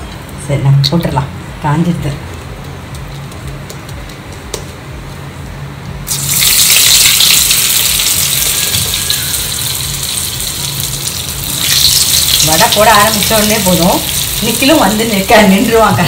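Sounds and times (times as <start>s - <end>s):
deep-frying sizzling and bubbling: 5.9s - 16.0s.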